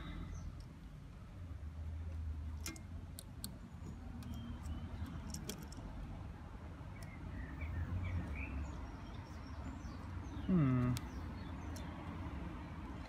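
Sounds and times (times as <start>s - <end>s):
faint bird chirps: 6.9s - 11.9s.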